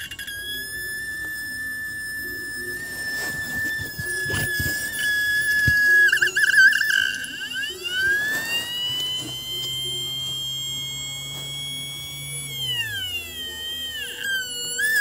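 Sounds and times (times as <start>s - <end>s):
spindle motor whining: 0.0s - 15.0s.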